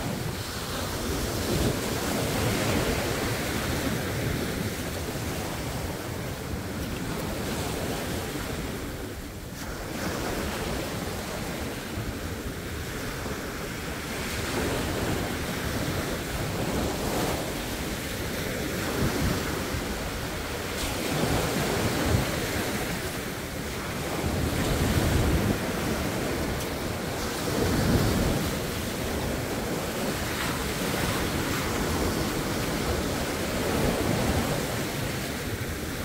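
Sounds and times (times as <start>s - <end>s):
waves breaking on shore: 0.0s - 36.0s
wind rumbling on microphone: 0.0s - 36.0s.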